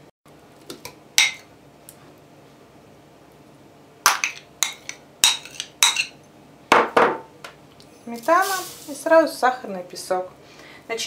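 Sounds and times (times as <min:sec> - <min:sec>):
kitchenware knocking and clinking: 0:04.1 - 0:07.3.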